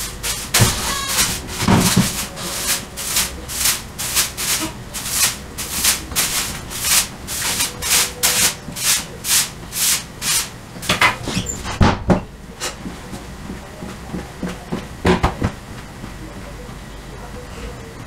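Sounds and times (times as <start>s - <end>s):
knocks and thumps: 0.0s - 6.8s, 10.8s - 16.2s
broom sweeping tiled floor: 0.0s - 11.9s.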